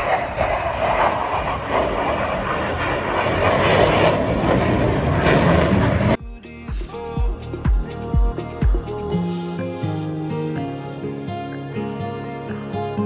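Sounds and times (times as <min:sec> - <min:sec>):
jet aircraft flying past: 0:00.0 - 0:06.2.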